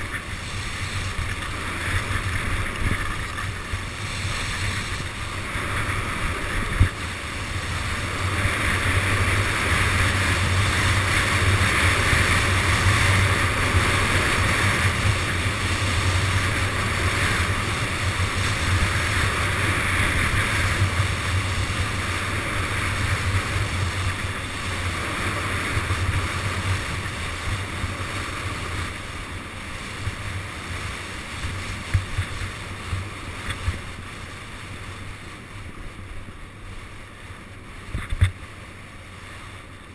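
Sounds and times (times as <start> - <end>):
wind buffeting microphone: 0.0 - 36.1
skis hissing over snow: 0.0 - 39.9.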